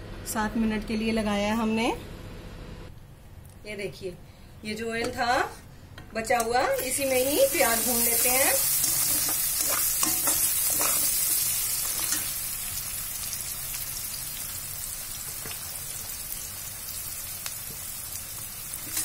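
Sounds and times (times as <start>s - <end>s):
onions sizzling in oil: 6.7s - 19.0s
steel spatula scraping pan: 7.9s - 12.4s.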